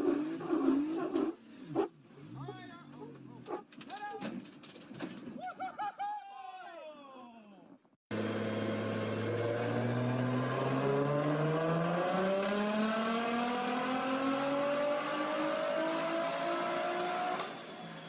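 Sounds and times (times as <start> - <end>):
car engine revving under load: 8.1 - 17.7.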